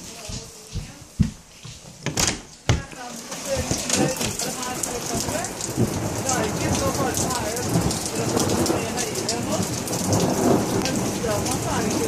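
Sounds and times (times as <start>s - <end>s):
rain falling: 0.0s - 12.0s
thunder rumbling: 3.5s - 12.0s.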